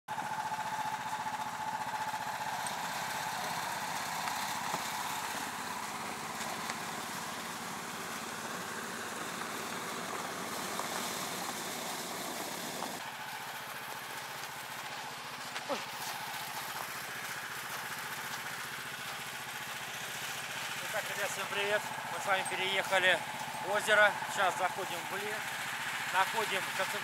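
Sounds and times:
motorized sled engine running: 0.1 - 27.0.

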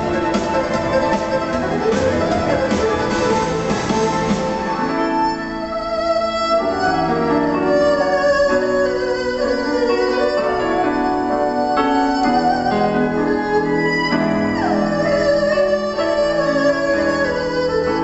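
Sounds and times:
erhu playing slow melody: 0.0 - 18.0.

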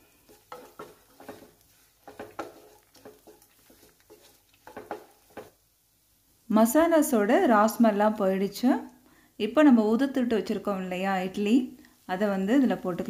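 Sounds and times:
wooden spatula scraping a pan: 0.0 - 5.6.

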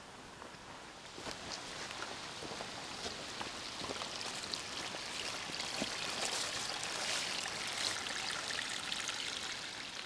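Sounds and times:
creek trickling and gurgling: 1.0 - 10.0.

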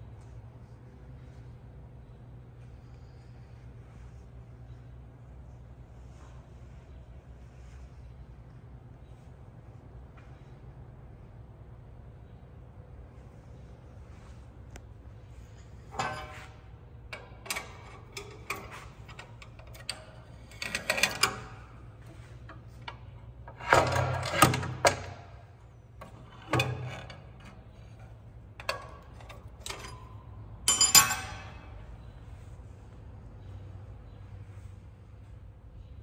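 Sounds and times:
rattling clatter of metal parts: 15.4 - 32.1
metallic clicks and clunks: 15.8 - 31.9.

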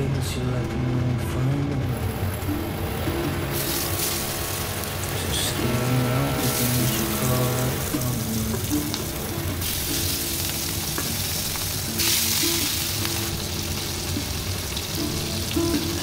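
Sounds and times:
fish sizzling in hot oil: 3.5 - 5.1, 6.3 - 16.0.

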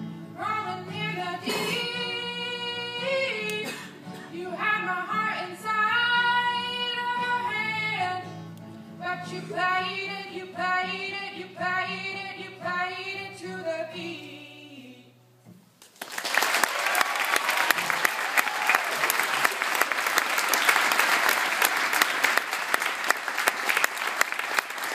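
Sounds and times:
acoustic guitar: 0.0 - 15.9
woman singing: 0.4 - 8.4, 9.0 - 15.2
audience applause: 15.9 - 24.9.

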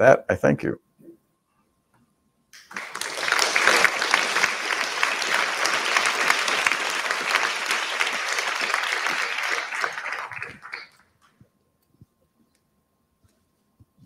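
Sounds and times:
audience applauding: 2.6 - 11.2.

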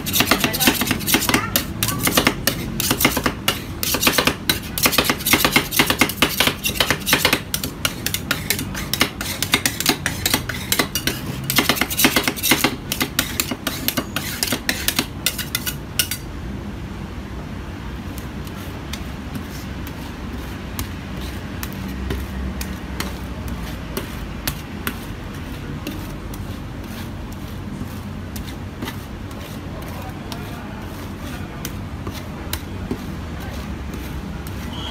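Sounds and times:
metal spatulas clattering on steel: 0.0 - 16.2.

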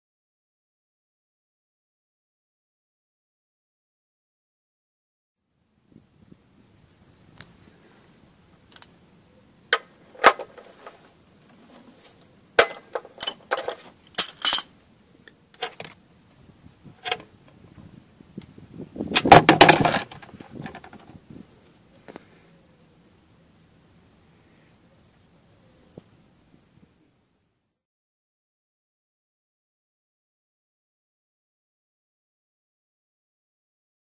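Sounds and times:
drain plug clattering: 12.6 - 14.6, 19.2 - 21.0
spanner clinking on metal: 12.6 - 14.7, 19.2 - 20.9
plastic pan being set down: 19.2 - 21.1.

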